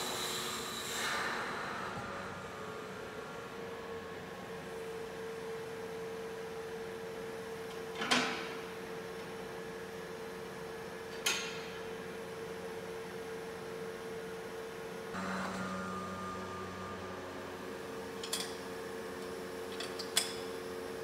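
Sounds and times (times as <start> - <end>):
electric pump hum: 0.0 - 7.4, 15.1 - 21.0.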